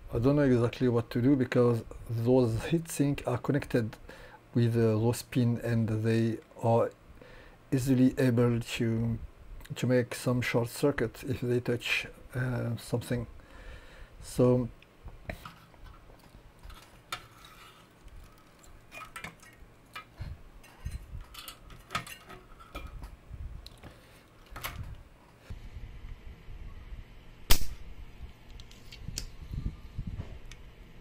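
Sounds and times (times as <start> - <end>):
clicks and knocks of handled metal: 15.3 - 25.0.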